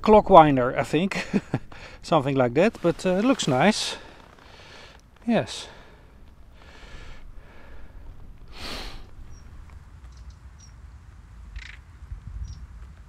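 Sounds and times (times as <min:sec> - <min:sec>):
wind rumble on microphone: 0:07.4 - 0:13.0
high bird chirps: 0:09.2 - 0:10.8, 0:12.4 - 0:12.6.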